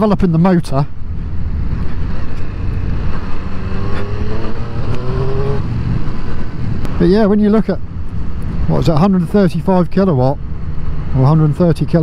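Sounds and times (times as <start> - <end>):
wind noise: 0.0 - 12.0
motorcycle engine: 1.0 - 7.0.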